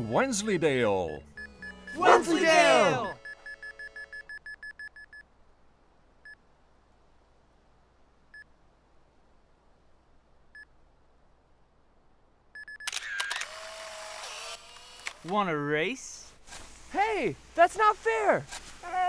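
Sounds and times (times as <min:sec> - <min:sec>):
camera self-timer beeps: 0:12.6 - 0:13.6
camera shutter click: 0:12.8 - 0:15.3.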